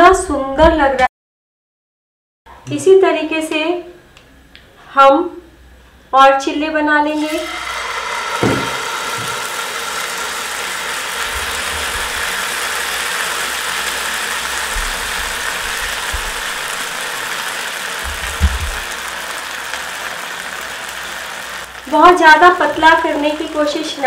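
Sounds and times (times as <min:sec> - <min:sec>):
batter sizzling in pan: 0:07.2 - 0:24.0.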